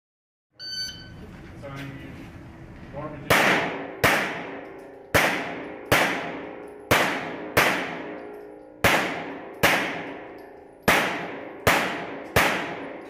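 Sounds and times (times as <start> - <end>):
pistol shots echoing indoors: 3.2 - 13.0.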